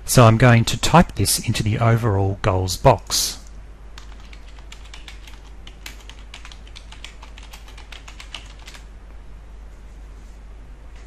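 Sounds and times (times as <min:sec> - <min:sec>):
low steady hum: 0:00.0 - 0:11.0
computer keyboard typing: 0:04.0 - 0:08.9.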